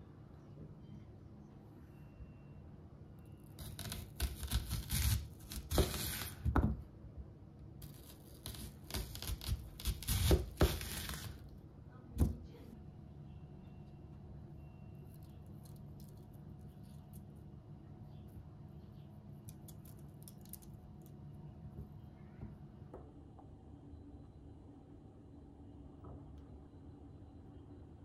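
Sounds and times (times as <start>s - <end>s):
knife crunching through onion: 3.6s - 6.5s, 7.8s - 11.5s.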